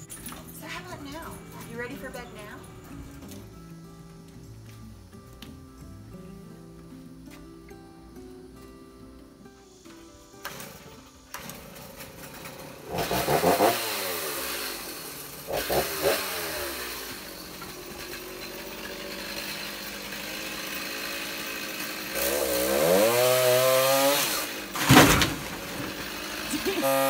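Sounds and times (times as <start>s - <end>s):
chainsaw cutting wood: 10.4s - 27.0s
tree top cracking and falling: 22.2s - 26.5s.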